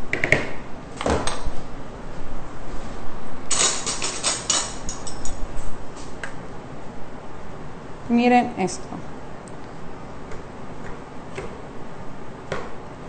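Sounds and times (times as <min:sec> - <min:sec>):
kitchen utensils clattering: 0:03.5 - 0:05.4.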